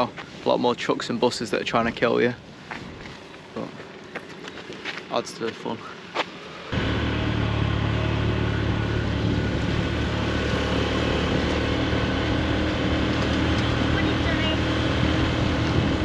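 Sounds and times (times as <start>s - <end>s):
motorcycle engine cruising: 6.3s - 16.0s
wind noise: 8.9s - 16.0s.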